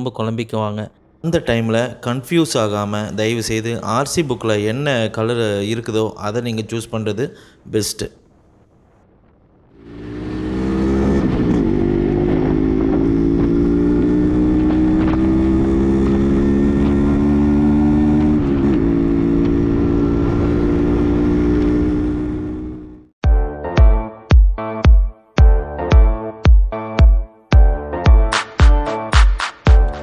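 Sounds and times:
two-stroke motorcycle engine riding: 9.8 - 23.1.

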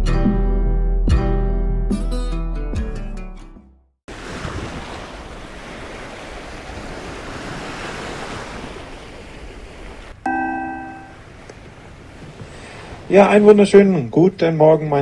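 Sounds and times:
sea noise: 4.1 - 14.2
wind: 4.1 - 15.0
multi-tone announcement chime: 10.3 - 11.2.

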